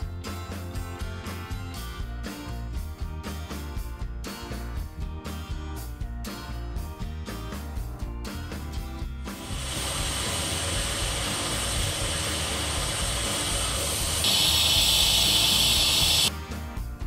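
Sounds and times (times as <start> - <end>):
pressure cooker steam hiss: 9.4 - 16.3.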